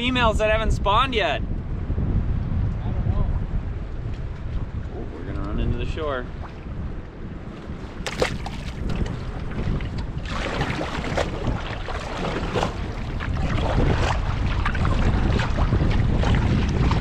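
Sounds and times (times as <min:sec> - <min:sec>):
wind buffeting microphone: 0:00.0 - 0:17.0
water sloshing around canoe: 0:07.9 - 0:17.0
water splash: 0:08.0 - 0:17.0.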